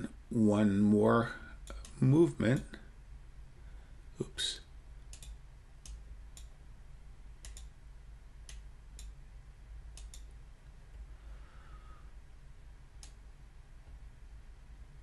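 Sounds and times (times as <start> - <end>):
low steady hum: 0.0 - 15.0
computer mouse clicking: 5.1 - 6.6, 7.4 - 7.7, 8.4 - 9.2, 9.9 - 10.3, 13.0 - 13.2.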